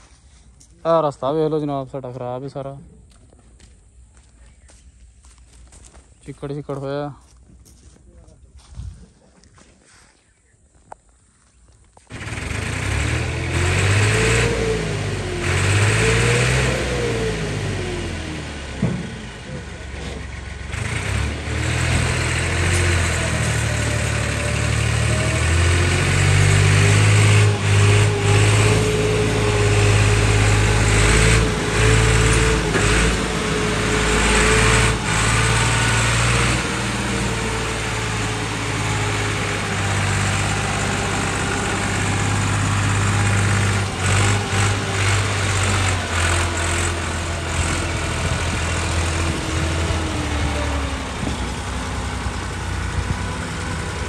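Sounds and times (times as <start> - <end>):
tractor engine under load: 10.8 - 54.0.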